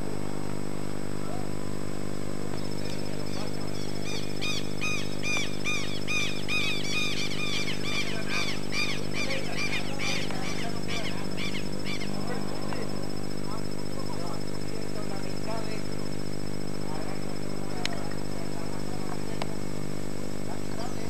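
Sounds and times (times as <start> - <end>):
low steady hum: 0.0 - 21.0
high-pitched chirping calls: 2.6 - 12.7.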